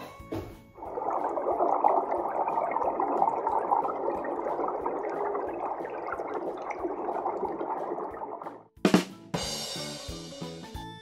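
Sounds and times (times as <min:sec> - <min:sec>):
underwater rushing bubbly water: 0:00.8 - 0:08.7.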